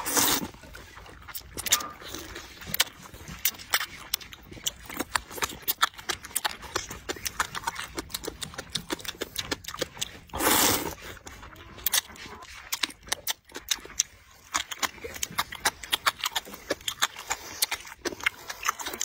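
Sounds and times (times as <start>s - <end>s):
noodle slurp: 0.0s - 19.0s
wet chewing and lip-smacking: 0.0s - 19.0s.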